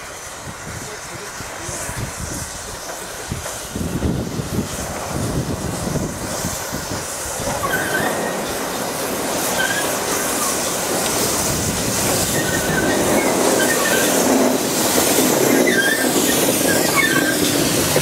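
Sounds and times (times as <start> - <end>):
train wheels rumbling on track: 0.0 - 18.0
wheels squealing on curve: 7.4 - 8.6, 9.4 - 10.7, 12.1 - 14.4, 15.0 - 18.0
clatter over rail joints: 7.4 - 18.0.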